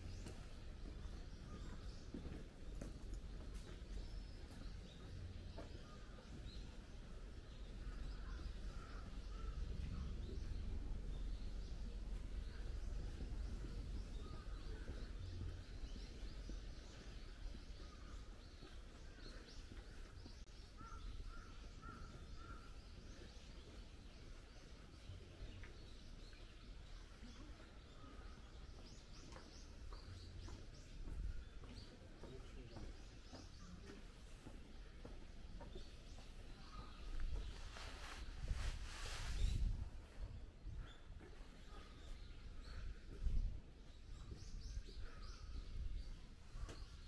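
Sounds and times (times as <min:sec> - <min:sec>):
faint low rumble: 0:00.0 - 0:19.2
birds chirping: 0:00.0 - 0:47.0.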